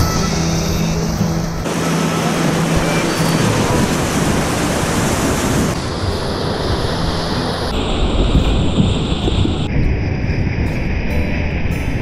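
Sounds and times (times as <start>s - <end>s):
whitewater rapids rushing: 0.0s - 7.8s.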